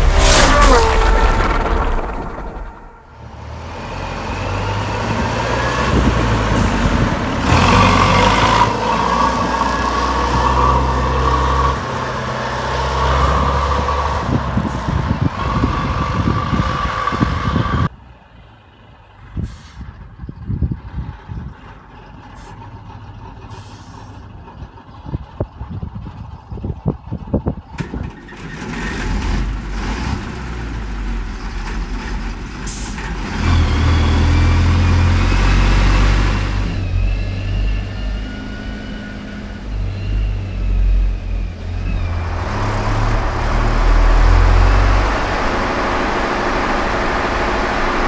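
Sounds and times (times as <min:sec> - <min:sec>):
diesel engine running: 0:29.0 - 0:48.0
steady high whine: 0:42.1 - 0:48.0.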